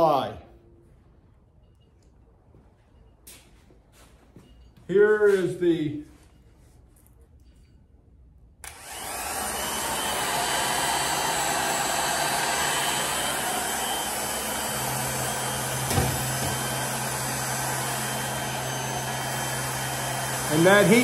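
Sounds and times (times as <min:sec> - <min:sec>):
heat gun fan blowing: 0:08.6 - 0:21.0.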